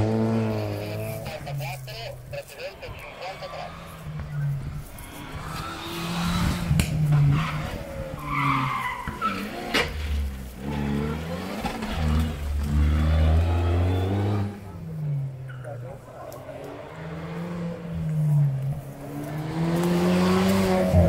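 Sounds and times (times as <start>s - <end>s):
rally car engine revving: 0.0s - 21.0s
tyres skidding and squealing: 0.0s - 21.0s
sharp crack: 5.4s - 7.1s.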